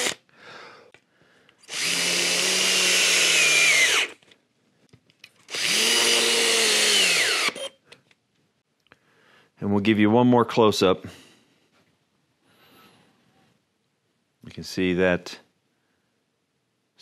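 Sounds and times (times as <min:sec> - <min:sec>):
drill motor whining: 0:00.0 - 0:00.2, 0:01.6 - 0:04.2, 0:05.5 - 0:07.8.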